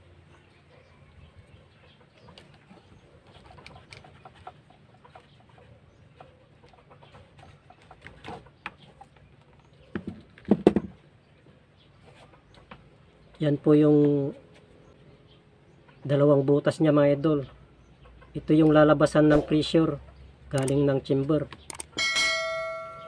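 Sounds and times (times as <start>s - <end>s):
plastic and metal parts clicking: 20.5s - 20.8s, 21.4s - 22.0s.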